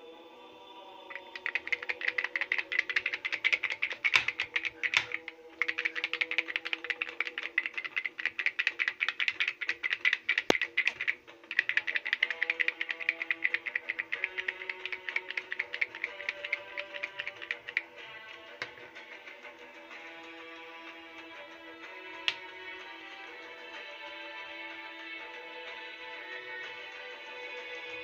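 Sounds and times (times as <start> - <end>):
plastic toy rattling clicks: 1.1 - 17.9.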